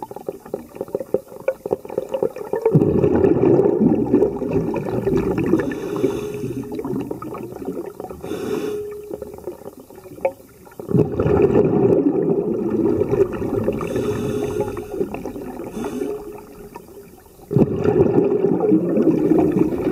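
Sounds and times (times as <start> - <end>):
exhaled bubbles gushing: 0.0 - 19.9
diver breathing through regulator: 5.3 - 7.2, 8.2 - 9.2, 13.6 - 16.8.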